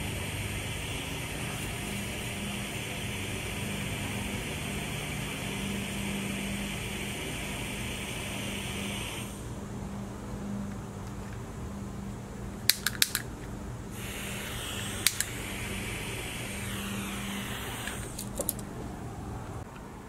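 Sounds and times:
steady low hum: 0:00.0 - 0:20.0
sharp clicks: 0:12.7 - 0:13.3, 0:14.8 - 0:15.4, 0:17.2 - 0:18.7
soft hiss: 0:13.9 - 0:18.9.

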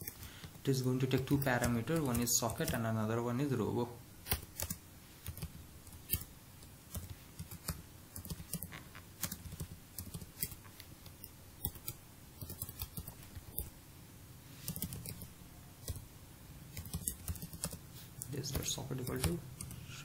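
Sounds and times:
computer keyboard typing: 0:01.1 - 0:02.9, 0:04.3 - 0:06.3, 0:06.9 - 0:13.7, 0:14.7 - 0:16.1, 0:16.7 - 0:17.8, 0:18.5 - 0:19.9.

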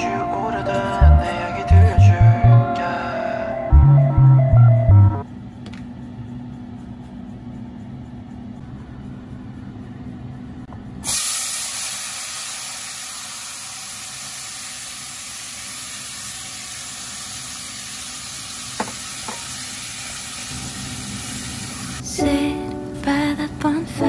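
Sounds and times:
food sizzling in hot oil: 0:11.0 - 0:22.0.

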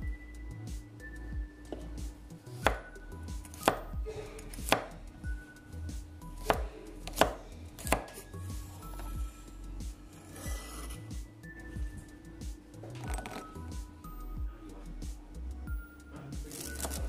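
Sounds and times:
knife chopping on wooden board: 0:02.6 - 0:04.9, 0:06.4 - 0:08.2.

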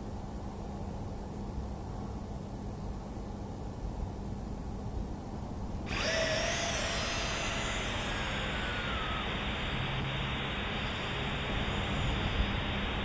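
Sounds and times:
faint motor whine: 0:02.9 - 0:13.0
drone propellers whirring: 0:05.5 - 0:13.0.

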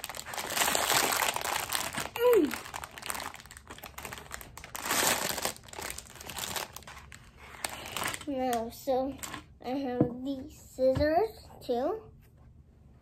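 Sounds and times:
plastic bag crinkling: 0:00.0 - 0:09.4
child's voice: 0:02.1 - 0:02.6, 0:08.2 - 0:12.1.

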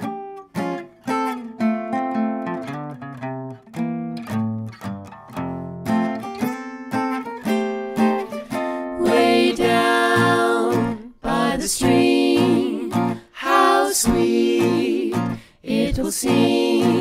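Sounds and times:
person singing with vibrato: 0:09.0 - 0:17.0.

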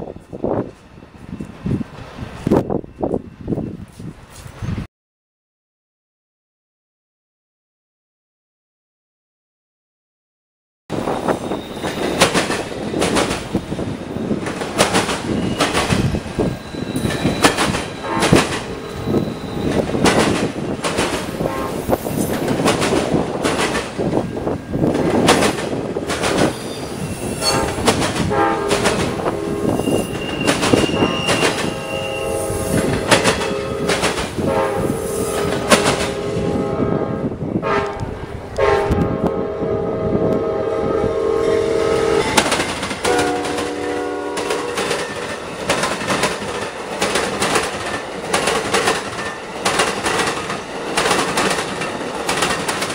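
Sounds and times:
freight train wheels clacking: 0:10.9 - 0:36.6, 0:42.1 - 0:52.9
wheel squeal: 0:11.2 - 0:12.9, 0:15.2 - 0:20.1, 0:26.5 - 0:27.8, 0:29.5 - 0:33.7
train horn: 0:18.0 - 0:19.7, 0:21.4 - 0:22.3, 0:27.2 - 0:42.4, 0:43.0 - 0:45.1.

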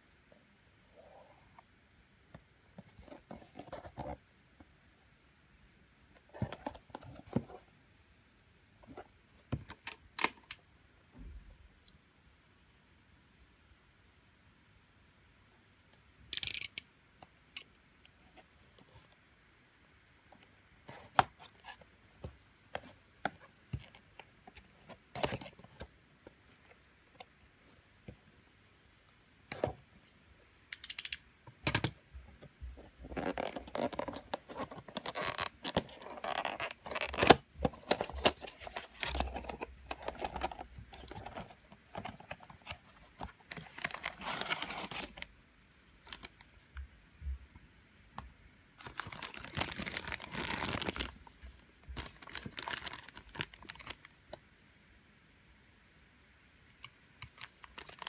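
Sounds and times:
cardboard rustling and tearing: 0:33.1 - 0:45.2, 0:48.8 - 0:51.2, 0:52.0 - 0:54.0
plastic bag crinkling: 0:48.8 - 0:51.2.

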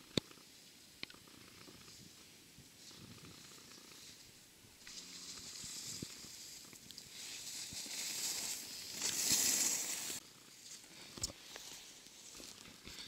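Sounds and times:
skis scraping over snow: 0:04.9 - 0:10.2.

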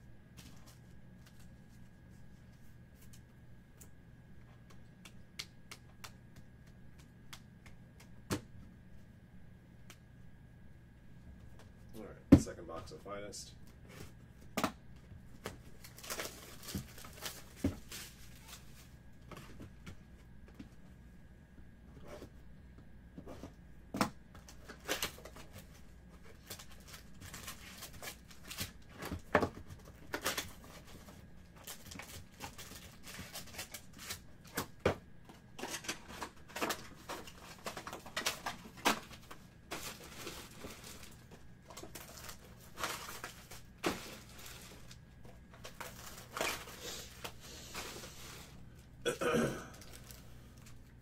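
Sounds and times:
pack wrappers crinkling and tearing: 0:15.4 - 0:19.0, 0:24.5 - 0:34.7, 0:35.6 - 0:48.8, 0:49.7 - 0:50.9.

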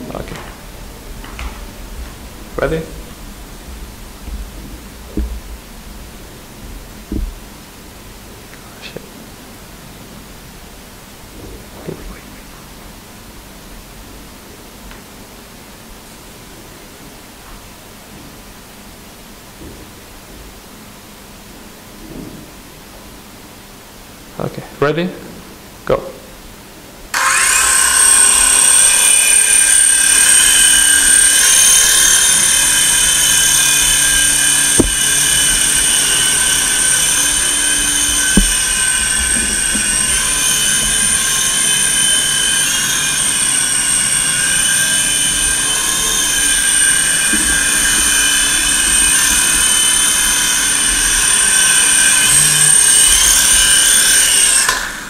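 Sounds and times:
toy helicopter motors whining: 0:27.1 - 0:55.0.

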